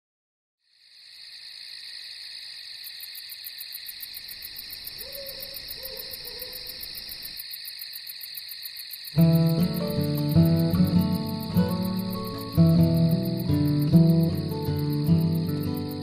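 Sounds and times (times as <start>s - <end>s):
crickets chirring: 0.6s - 16.0s
owl hooting: 5.0s - 6.8s.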